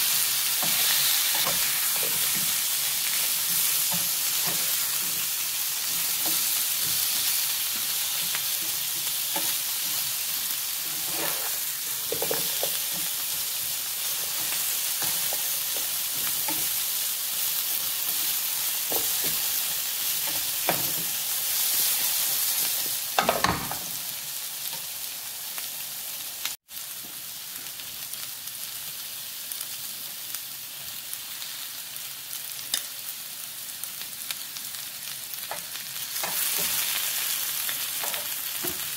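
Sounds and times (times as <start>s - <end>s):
vegetables sizzling in oil: 0.0s - 38.9s
spatula scraping a pan: 0.2s - 16.9s.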